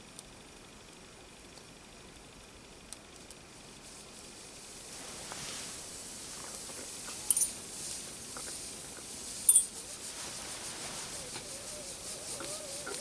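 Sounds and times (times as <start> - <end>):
steam hissing from jets: 3.4 - 13.0
metallic clinks: 7.3 - 7.6, 9.5 - 9.7.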